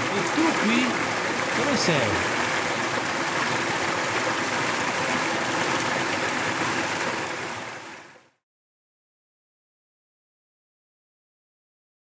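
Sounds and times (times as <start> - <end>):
mountain stream flowing: 0.0 - 8.4.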